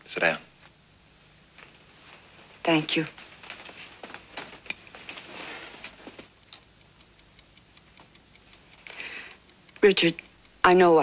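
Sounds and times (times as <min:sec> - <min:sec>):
soft rustle: 0:01.5 - 0:06.4
pocket watch clicks and metallic taps: 0:06.5 - 0:10.6.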